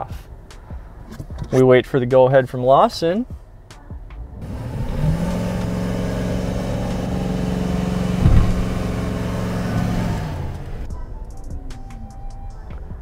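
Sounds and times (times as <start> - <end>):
truck engine revving: 4.4 - 10.9
brief thump: 8.1 - 8.9.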